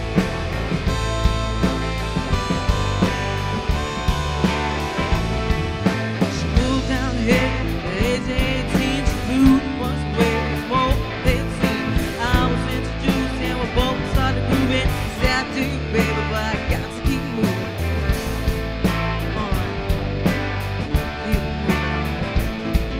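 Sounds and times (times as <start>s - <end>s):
drum hits: 0.0s - 12.8s
keyboard: 0.0s - 22.9s
steady bass: 0.0s - 22.9s
wavering lead guitar line: 0.0s - 22.9s.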